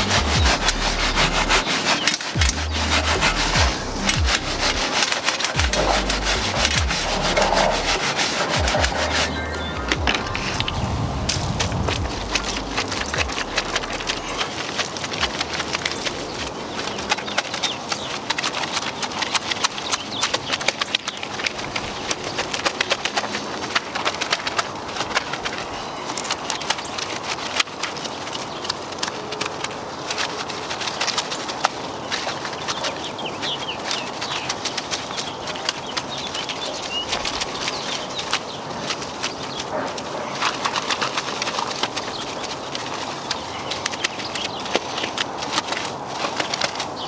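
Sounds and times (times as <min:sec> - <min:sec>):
birds chirping: 0:00.0 - 0:47.0
irregular sharp ticks: 0:00.0 - 0:47.0
wash mitt scrubbing wet wheel: 0:00.0 - 0:47.0.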